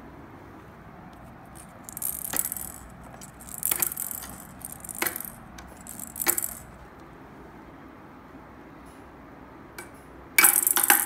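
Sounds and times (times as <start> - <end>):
plastic balls clattering on tray: 1.5 - 6.8, 10.4 - 11.0.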